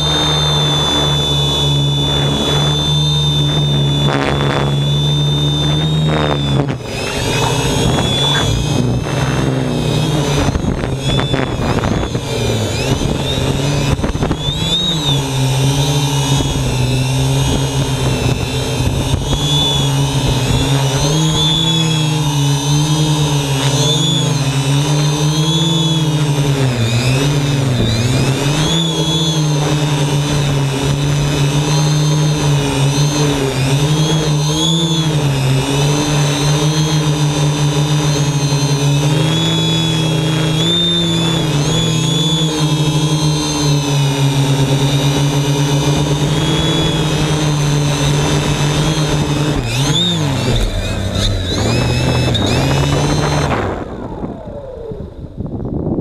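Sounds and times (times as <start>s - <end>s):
drone propellers whining: 0.0s - 56.0s.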